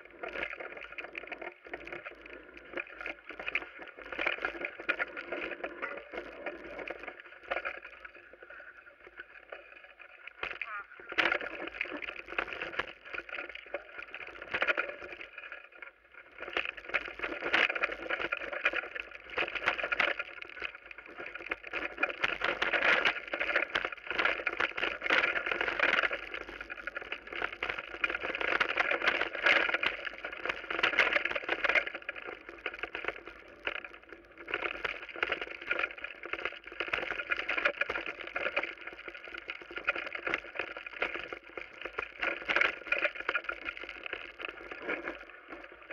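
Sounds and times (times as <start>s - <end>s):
mountain bike clattering on trail: 16.4s - 45.2s.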